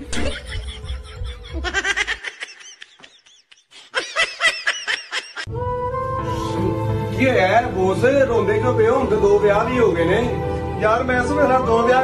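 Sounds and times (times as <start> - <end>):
high-pitched laughter: 0.0 - 5.5.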